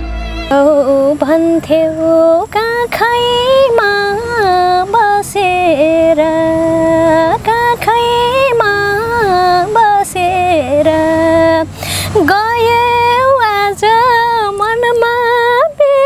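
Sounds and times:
woman singing solo: 0.0 - 4.8
singer breathing: 11.7 - 12.2.

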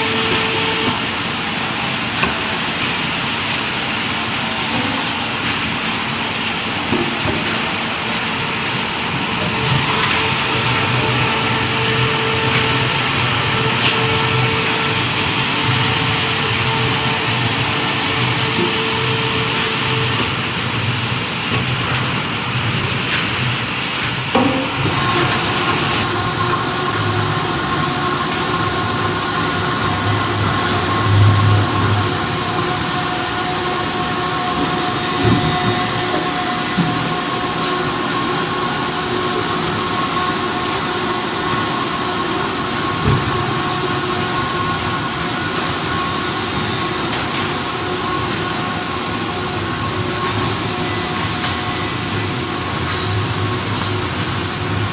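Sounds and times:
motor whine: 0.0 - 1.0, 9.2 - 20.4
machinery rumbling: 0.0 - 54.9.

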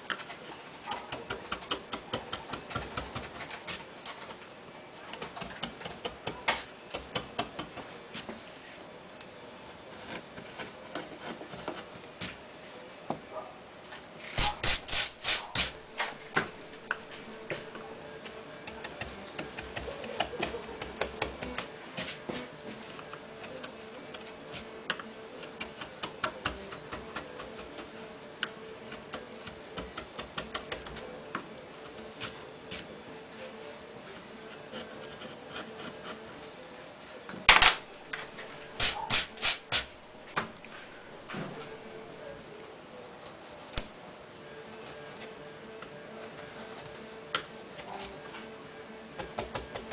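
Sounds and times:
brushing wood chips: 14.2 - 16.3, 38.2 - 40.0
gouge scraping wood: 34.5 - 36.4.

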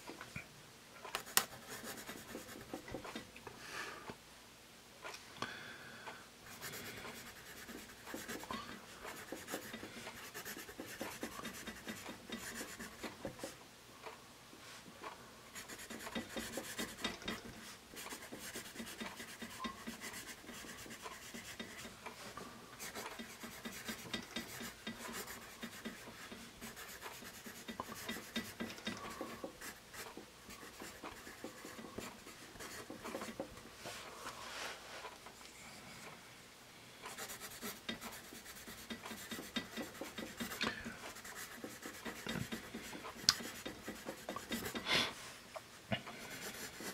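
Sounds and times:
pencil scratching on paper: 1.2 - 3.1, 6.5 - 13.6, 15.5 - 22.0, 22.8 - 33.6, 37.1 - 44.9, 46.2 - 46.9.

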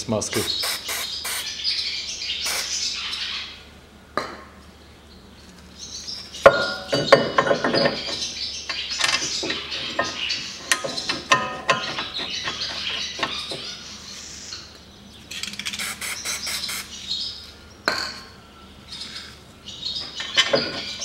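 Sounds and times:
metal clinking and clattering: 20.0 - 21.0.

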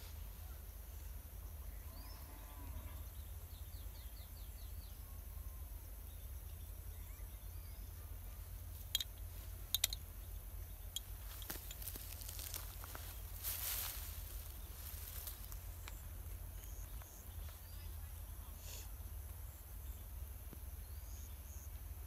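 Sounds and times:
sharp clicks: 8.9 - 10.0.

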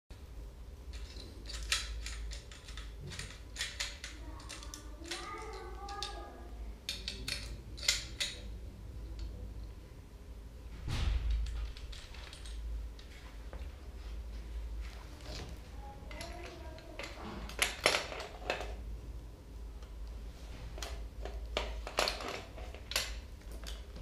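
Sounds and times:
metallic clicks and taps: 6.9 - 8.5.

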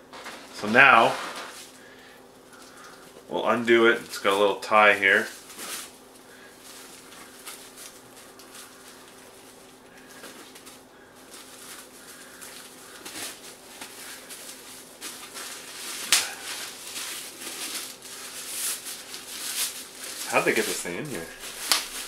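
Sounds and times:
hands rustling burlap sack: 5.2 - 22.0.

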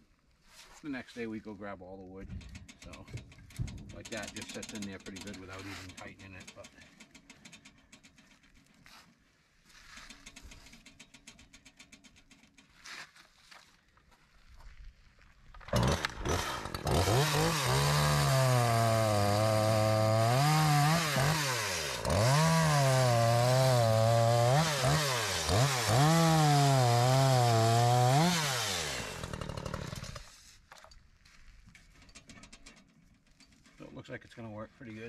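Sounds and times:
chainsaw cutting logs: 2.4 - 8.7, 15.6 - 30.7.

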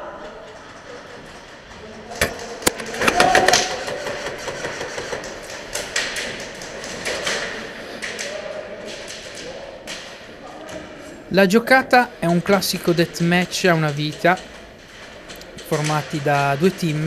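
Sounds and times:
airsoft gun clacks: 2.1 - 10.7.

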